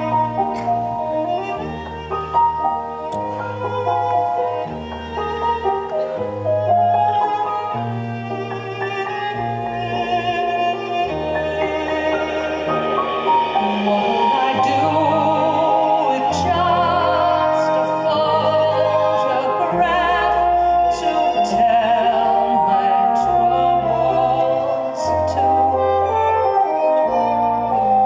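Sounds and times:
live band playing: 0.0 - 28.0
woman singing with vibrato: 11.6 - 26.0.

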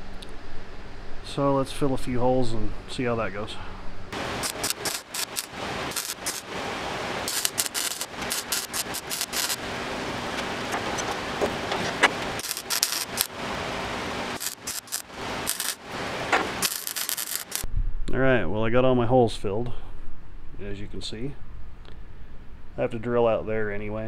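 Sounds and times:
welder crackling: 4.2 - 17.7.

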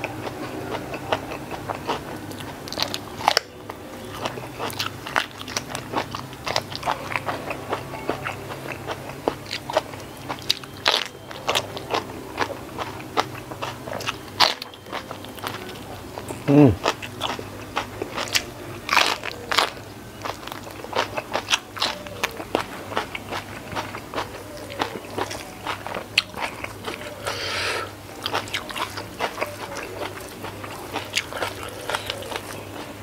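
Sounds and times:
wet chewing: 0.0 - 33.0
person humming: 16.4 - 16.8, 27.0 - 28.0.

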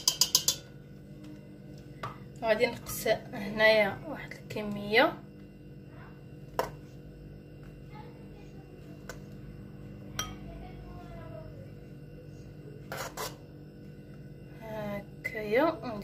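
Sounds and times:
metal utensil clinking on bowl: 0.0 - 0.7
steady low hum: 0.0 - 16.0.

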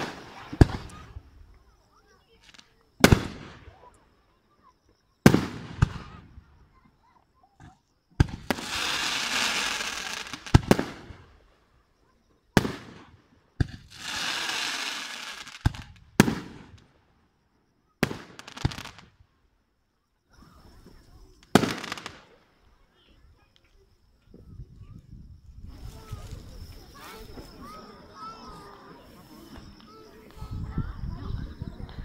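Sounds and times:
fireworks booming: 0.0 - 1.5, 2.5 - 3.8, 5.2 - 6.8, 7.6 - 11.5, 12.5 - 17.1, 18.0 - 19.2, 20.8 - 22.4
dense steady hiss: 0.0 - 4.6, 8.0 - 24.5.

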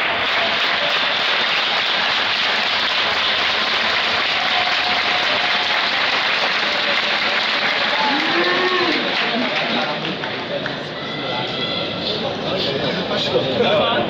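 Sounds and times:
crowd clapping: 0.0 - 11.2.

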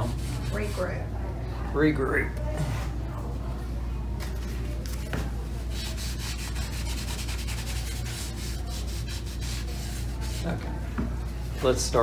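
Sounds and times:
brush rubbing on canvas: 0.0 - 1.0, 5.6 - 12.0.

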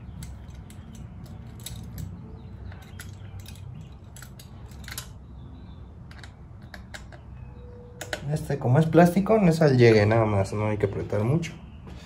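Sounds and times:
small parts and tools clicking: 0.0 - 5.3, 6.0 - 7.3.

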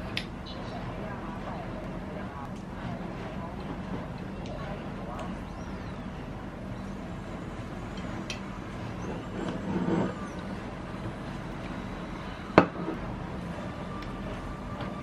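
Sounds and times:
low background hum: 0.0 - 15.0
plate scraping on wooden desk: 9.2 - 10.3.

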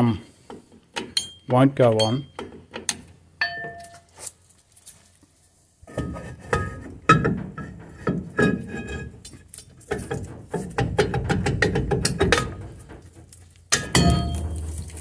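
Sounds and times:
brake drum clinking and scraping: 6.0 - 15.0.

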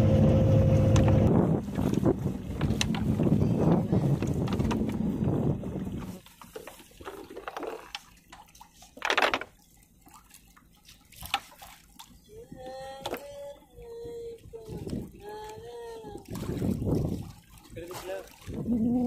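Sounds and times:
loud steady rumble: 0.0 - 1.8
water lapping against boat: 0.0 - 19.0
water splash: 5.8 - 12.2, 16.1 - 19.0.

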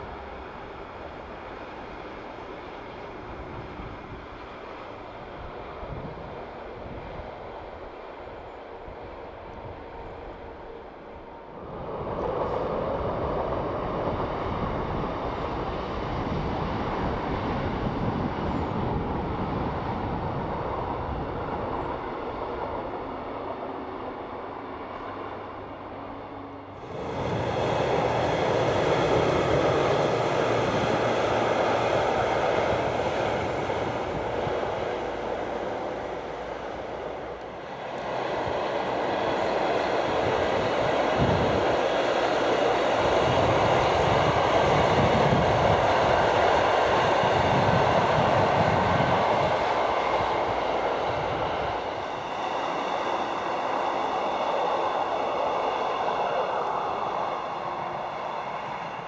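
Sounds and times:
diesel train running past: 0.0 - 59.0.

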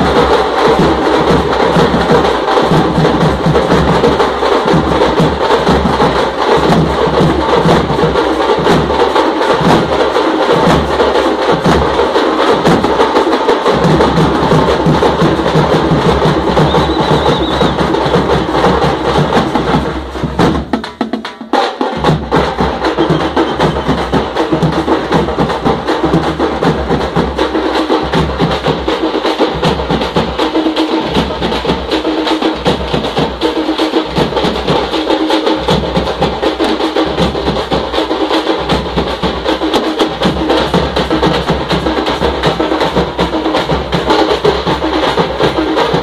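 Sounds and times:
frame drums beaten with sticks: 0.0 - 46.0.

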